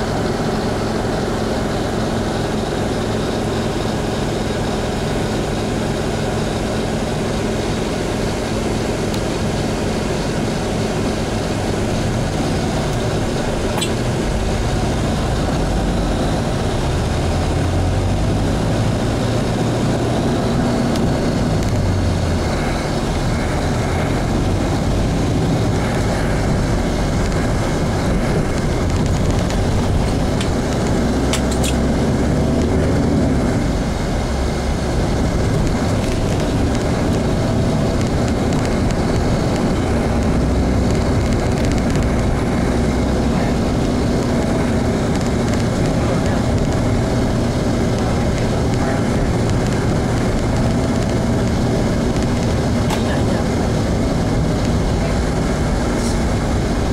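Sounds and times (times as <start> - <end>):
buses and cars passing: 0.0 - 56.9
engine and road rumble: 0.0 - 56.9.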